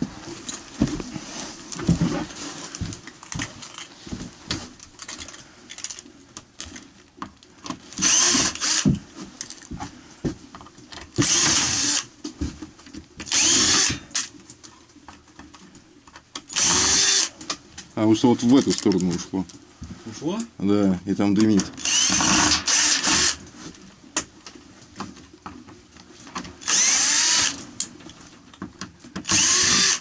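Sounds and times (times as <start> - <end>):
cordless drill into wood: 8.0 - 9.0, 11.2 - 12.1, 13.3 - 14.2, 16.5 - 17.3, 21.8 - 23.4, 26.6 - 27.6, 29.2 - 30.0.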